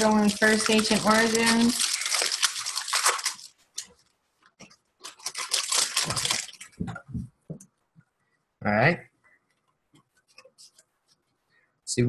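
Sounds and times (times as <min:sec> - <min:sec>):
foil wrappers crinkling and tearing: 0:00.0 - 0:07.0.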